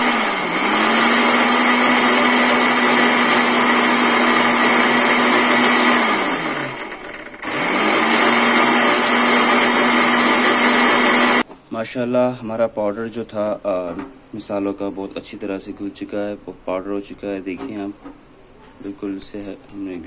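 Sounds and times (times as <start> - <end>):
grinder motor running: 0.0 - 11.4
grinder winding down: 0.0 - 11.4.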